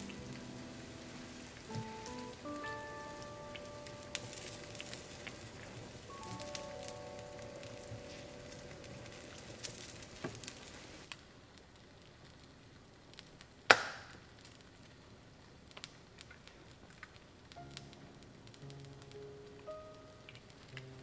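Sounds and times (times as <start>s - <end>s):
soup simmering in a pot: 0.0s - 13.2s
faint crackling: 0.0s - 21.0s.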